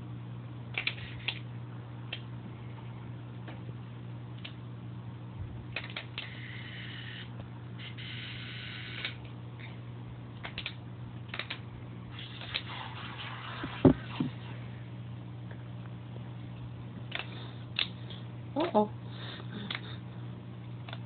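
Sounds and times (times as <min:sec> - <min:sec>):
fish tank equipment humming: 0:00.0 - 0:21.0
sharp clicks: 0:10.4 - 0:11.6.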